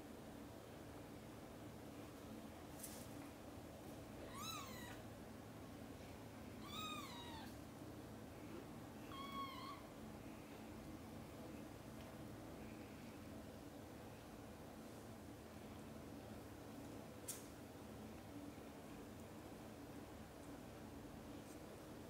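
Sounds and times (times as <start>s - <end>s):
cat meowing: 4.3s - 5.0s, 6.6s - 7.5s, 9.1s - 9.8s.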